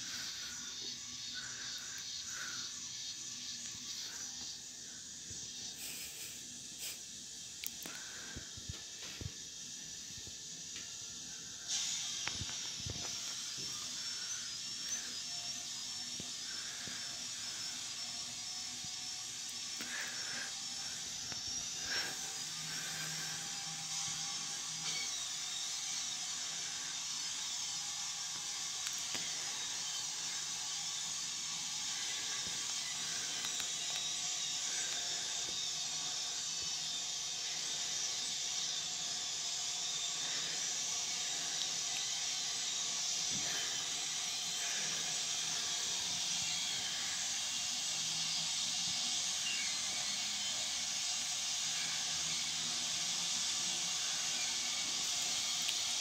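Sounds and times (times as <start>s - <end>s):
high-pitched hiss: 0.0s - 56.0s.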